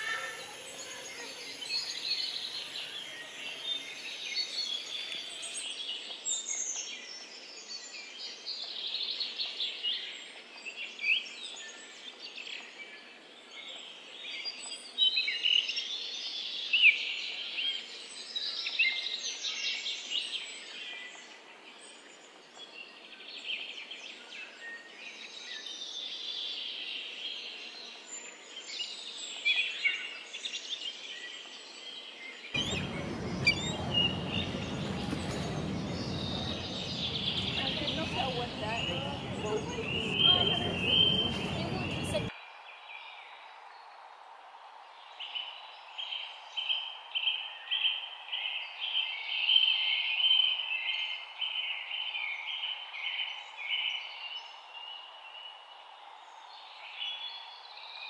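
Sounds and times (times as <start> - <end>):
birds chirping and trilling: 32.0 - 42.3
steady low noise: 32.6 - 42.3.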